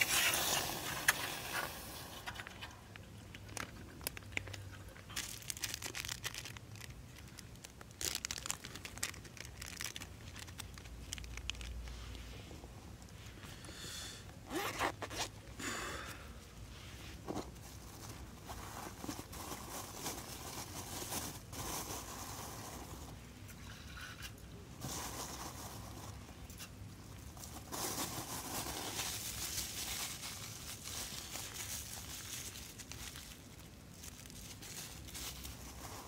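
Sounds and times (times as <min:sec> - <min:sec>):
plastic pouch crinkling and tearing: 0:00.0 - 0:12.0, 0:27.3 - 0:36.0.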